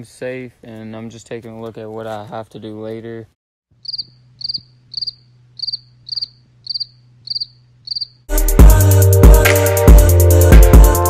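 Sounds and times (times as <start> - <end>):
cricket chirping: 3.8 - 8.3
loud music with heavy drum beat: 8.3 - 11.0.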